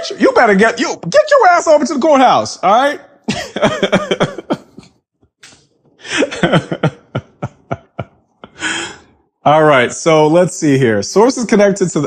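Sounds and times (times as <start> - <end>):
man laughing: 3.3 - 5.0, 6.0 - 8.9.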